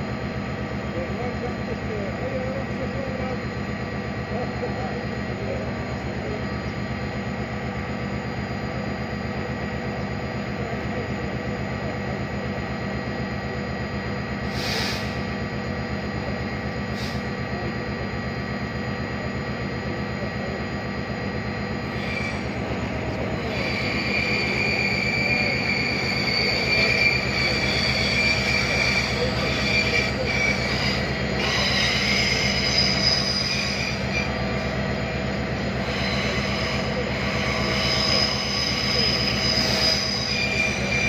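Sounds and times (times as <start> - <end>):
electric train whine: 0.0 - 41.0
short hisses: 14.5 - 15.2.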